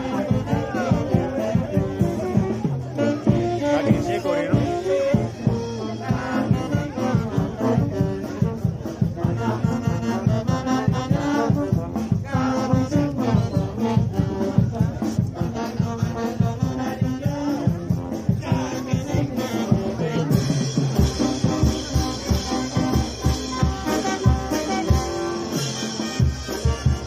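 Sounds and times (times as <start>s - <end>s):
brass band playing: 0.0s - 27.0s.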